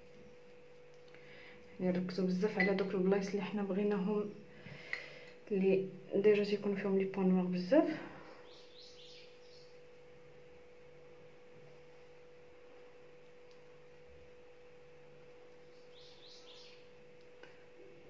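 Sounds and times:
faint electrical hum: 0.0s - 18.0s.

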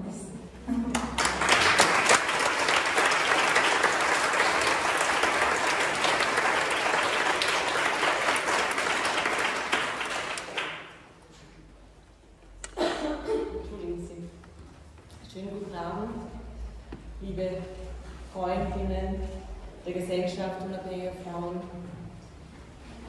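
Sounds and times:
audience applauding: 0.9s - 11.1s.

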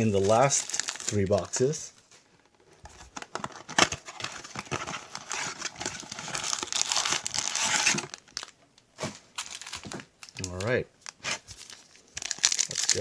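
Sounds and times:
plastic wrapper crinkling and tearing: 0.0s - 1.8s, 2.5s - 8.6s, 9.3s - 13.0s
wrapper snapping: 9.4s - 13.0s.

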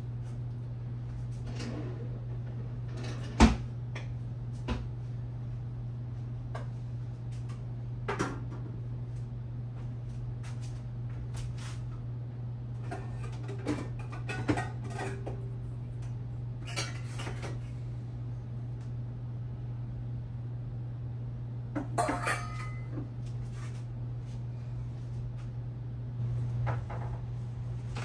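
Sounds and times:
pots and pans clattering: 12.8s - 15.5s, 16.6s - 17.6s, 21.8s - 23.0s.

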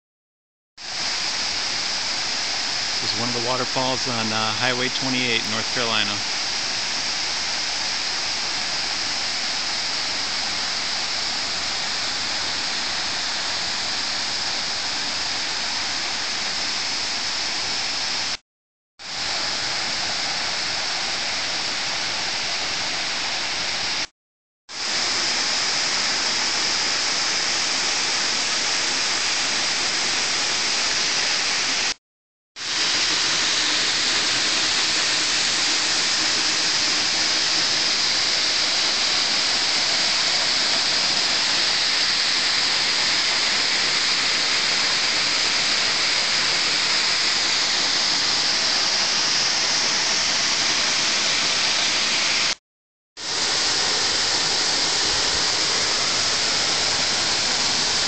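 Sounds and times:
waterfall pouring onto rock: 32.6s - 52.6s, 53.2s - 58.0s.

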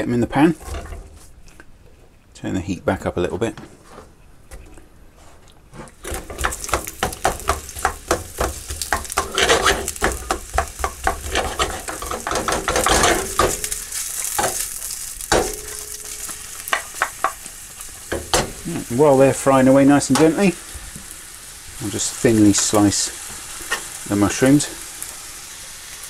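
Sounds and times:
spatula scraping pan: 5.3s - 18.8s, 22.7s - 24.6s
onions sizzling in frying pan: 6.0s - 26.0s.

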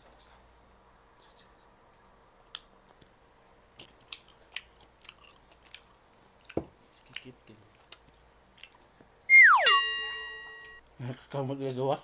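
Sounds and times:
mouth chewing clicks and smacks: 3.8s - 8.9s.

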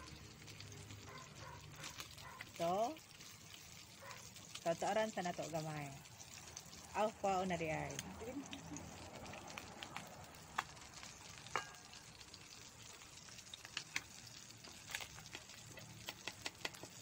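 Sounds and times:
fish sizzling in hot oil: 0.0s - 17.0s
metal tongs clinking on pan: 11.4s - 12.0s.

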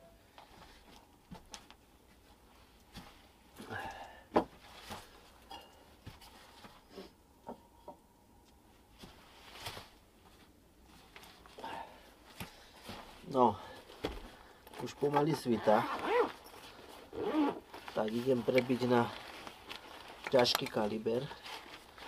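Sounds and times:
soft rustling: 8.4s - 22.0s.

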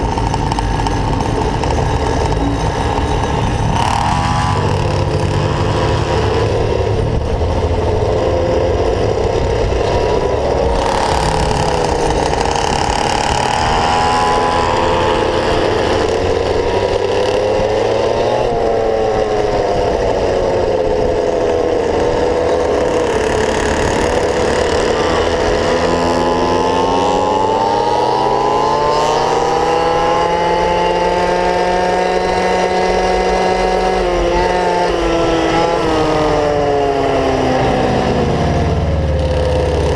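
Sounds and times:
small gasoline scooter engine: 0.0s - 39.9s.

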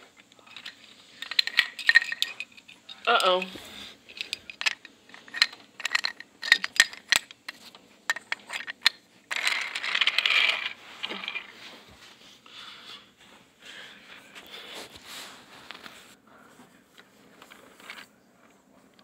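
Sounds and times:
scraping and rustling: 0.0s - 18.8s
wooden toy train pieces clacking: 0.1s - 11.5s.

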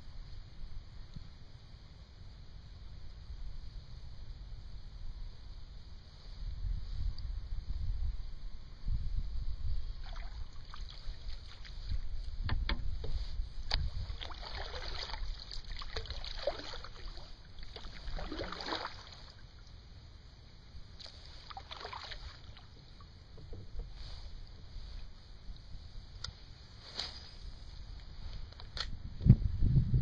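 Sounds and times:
wind on microphone: 3.0s - 19.2s, 26.8s - 30.0s
paddle swishing through water: 10.0s - 12.2s, 12.9s - 19.4s, 21.0s - 24.9s.

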